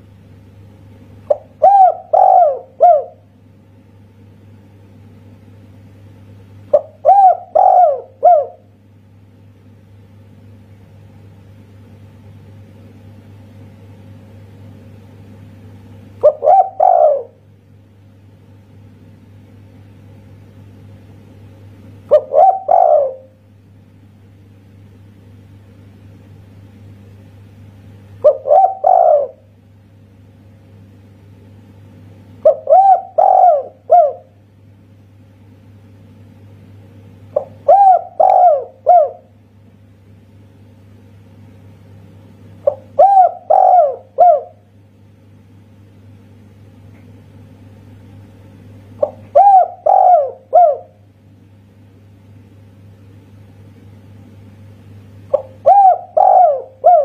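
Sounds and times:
steady low hum: 0.0 - 57.0
dove cooing: 1.3 - 3.3, 6.7 - 8.7, 16.2 - 17.4, 22.1 - 23.4, 28.2 - 29.5, 32.4 - 34.4, 37.3 - 39.3, 42.6 - 44.7, 49.0 - 51.0, 55.3 - 57.0.

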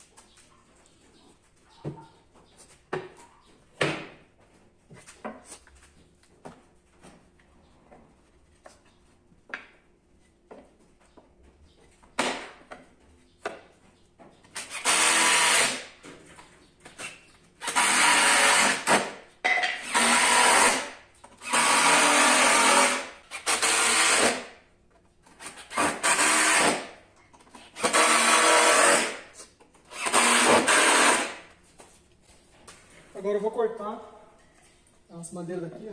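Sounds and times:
power drill running: 14.6 - 15.8, 17.6 - 19.1, 19.8 - 24.4, 25.7 - 26.8, 27.8 - 29.2, 29.9 - 31.4.

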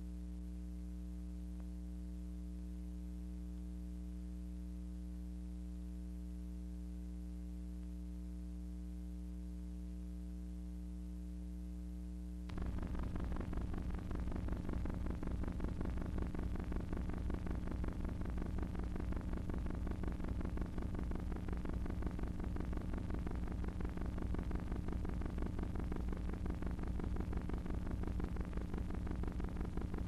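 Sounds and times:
electrical hum: 0.0 - 30.0
rough pulsing noise: 12.5 - 30.0.

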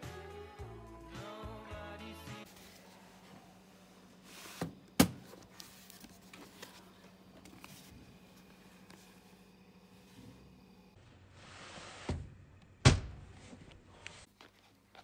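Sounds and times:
book rustling: 2.5 - 3.5, 5.2 - 9.4
steady low hum: 2.5 - 11.6.

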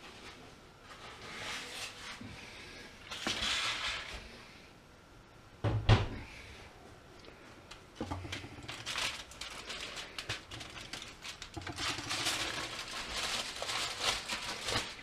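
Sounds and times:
tin foil crinkling and rustling: 3.0 - 4.2, 7.7 - 15.0.

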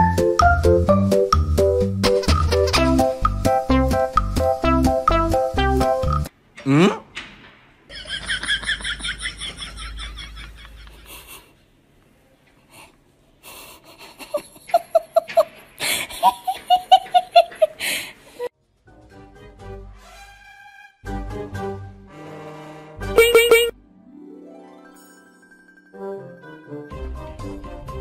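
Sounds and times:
dubbed-in laughter: 7.9 - 11.5, 13.7 - 17.8.

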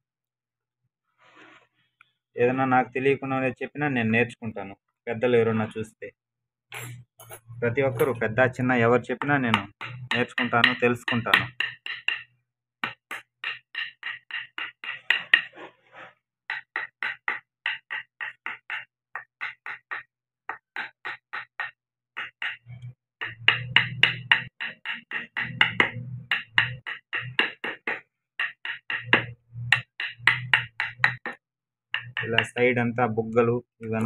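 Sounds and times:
chisel tapping into wood: 9.2 - 15.5, 16.5 - 31.4, 32.0 - 32.6.

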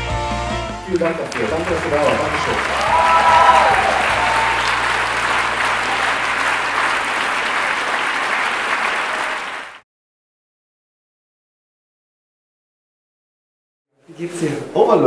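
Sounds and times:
audience applauding: 0.8 - 9.8.

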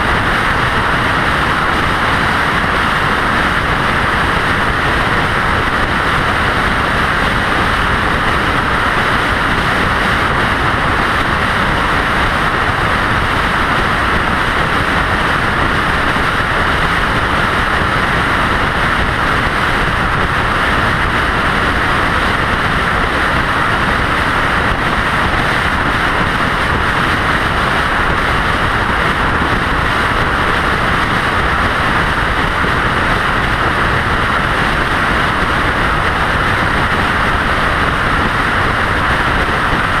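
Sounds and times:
road and wind noise: 0.0 - 40.0.

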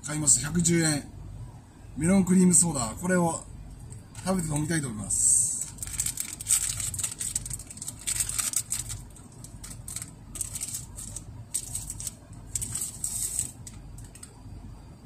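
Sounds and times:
plastic wrapper crinkling: 5.5 - 14.3.

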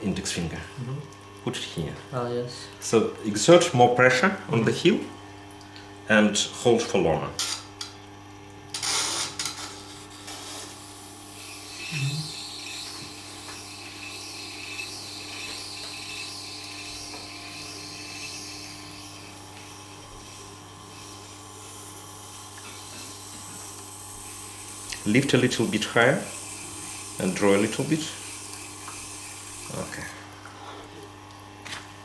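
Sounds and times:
knife grinding on stone: 8.8 - 30.0
grinder motor humming: 8.8 - 31.6.

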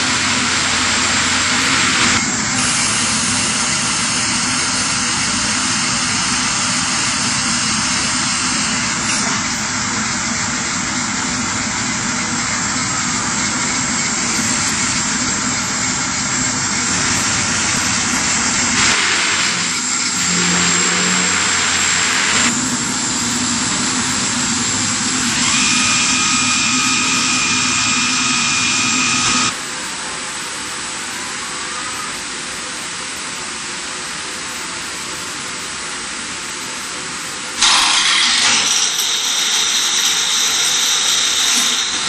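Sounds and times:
grinding head sanding boards: 0.0 - 29.5.

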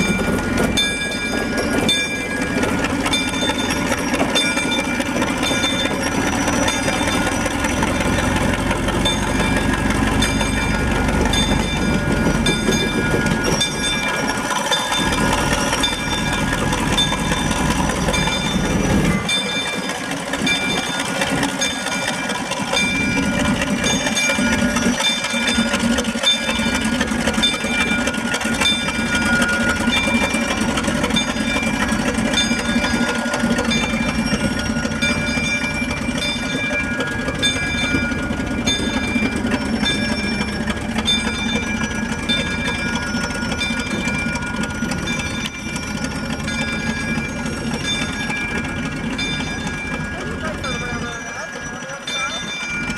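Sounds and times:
locomotive engine rumble: 0.0 - 52.9
rail and wheel noise: 0.0 - 52.9.

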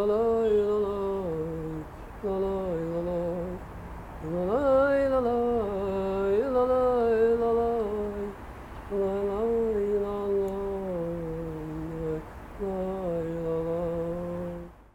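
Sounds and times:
person humming: 8.9 - 14.7.

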